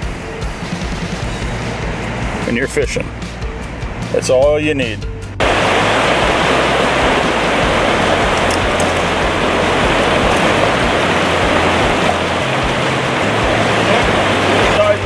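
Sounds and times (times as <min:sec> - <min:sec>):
stream water pouring over rocks: 0:05.4 - 0:15.0.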